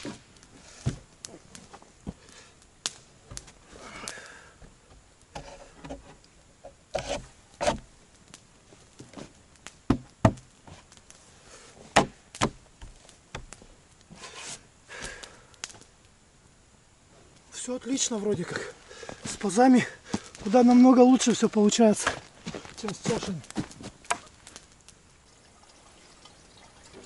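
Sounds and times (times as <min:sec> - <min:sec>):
log scraping: 0:05.3 - 0:07.9, 0:14.1 - 0:15.1, 0:17.9 - 0:24.8
wooden knocks on log: 0:09.9 - 0:10.4, 0:12.0 - 0:13.5.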